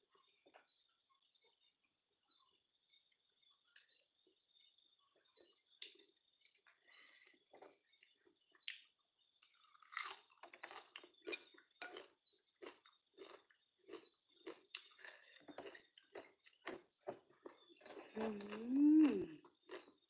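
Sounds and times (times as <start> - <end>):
person chewing crunchy food: 7.6 - 20.0
person humming: 18.2 - 19.4.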